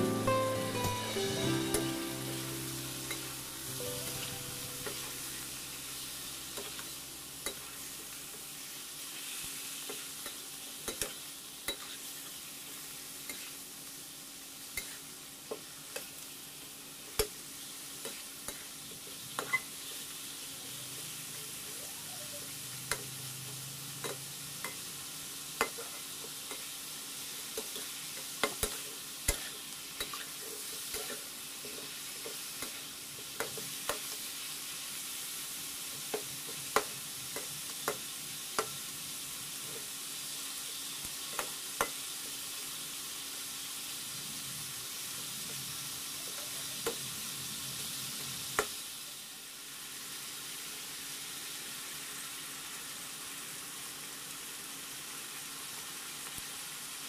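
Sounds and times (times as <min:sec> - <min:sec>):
meat sizzling in hot oil: 0:00.0 - 0:57.0
metal spatula scraping a wok: 0:28.6 - 0:32.0.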